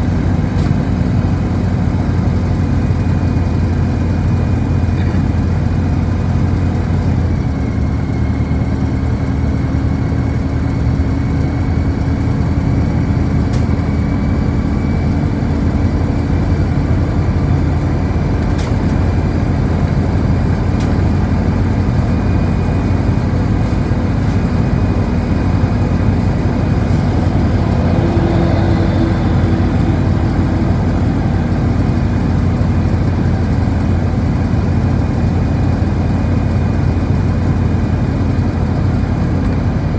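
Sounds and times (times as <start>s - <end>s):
bus engine drone: 0.0s - 39.9s
road rumble: 0.0s - 39.9s
thin steady whine: 19.1s - 39.4s.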